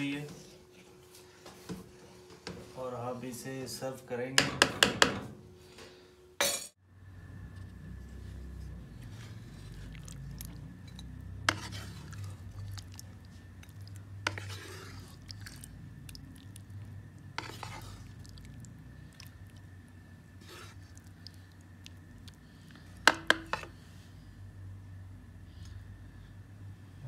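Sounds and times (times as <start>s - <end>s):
low steady hum: 5.2s - 27.0s
metal spoon scraping a pan: 10.8s - 12.8s, 13.5s - 15.7s, 17.3s - 18.2s, 20.4s - 21.0s, 23.1s - 23.8s.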